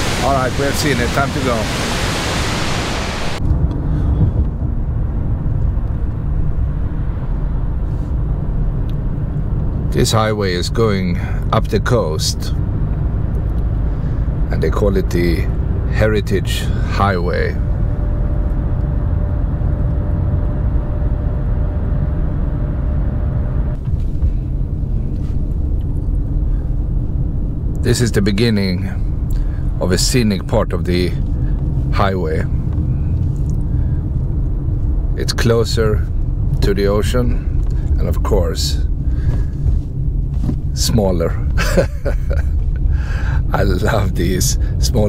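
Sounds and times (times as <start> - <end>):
waterfall rushing: 0.0 - 3.4
car road and engine rumble: 0.0 - 45.0
faint steady whine: 0.0 - 45.0.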